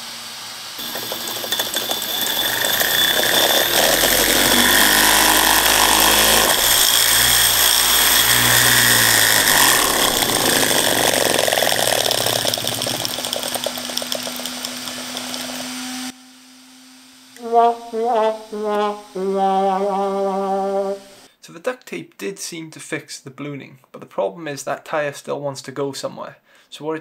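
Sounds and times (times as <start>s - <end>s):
electric motor whine: 0.8s - 16.1s.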